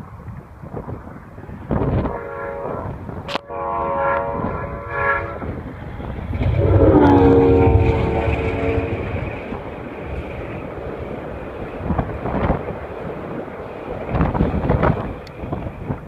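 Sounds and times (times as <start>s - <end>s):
locomotive engine rumble: 0.0s - 16.0s
locomotive air horn blasts: 1.9s - 5.8s, 6.4s - 9.6s.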